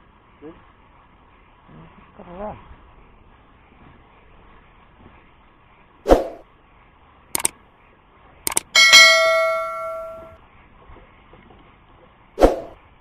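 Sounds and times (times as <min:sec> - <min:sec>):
mouse clicks: 0:08.5 - 0:08.7
notification bell ding: 0:08.5 - 0:10.3.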